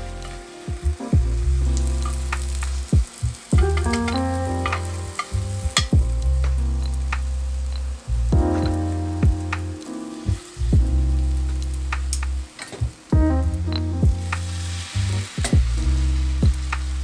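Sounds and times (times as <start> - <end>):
background music with piano chords: 0.0 - 17.0
egg sizzling in a pan: 1.5 - 5.9, 14.3 - 15.5
chopsticks clicking against pan: 3.7 - 5.9.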